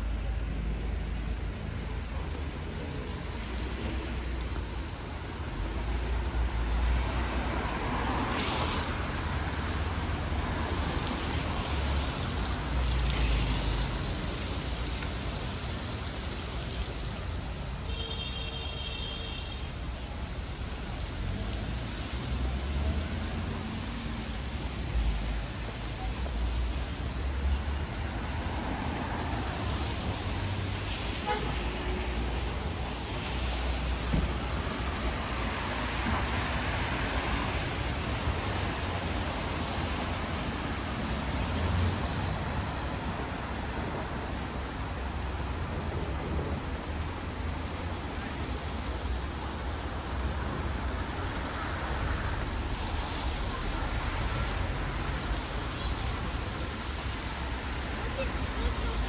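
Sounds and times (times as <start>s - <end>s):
road noise hiss: 0.0s - 59.0s
vehicles passing: 0.0s - 59.0s.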